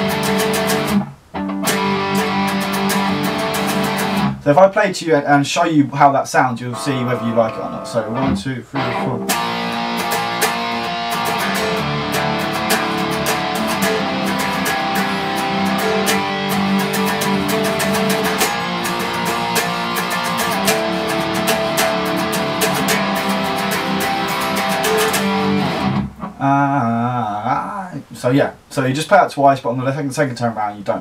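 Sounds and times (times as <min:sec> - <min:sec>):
electric guitar riff: 0:00.0 - 0:04.5, 0:06.6 - 0:26.8.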